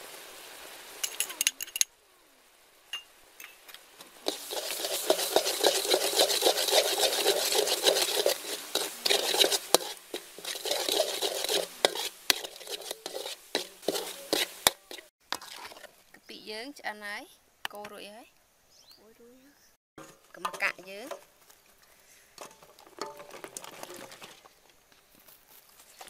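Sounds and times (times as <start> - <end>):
metal spoon scraping a wok: 4.3 - 15.9.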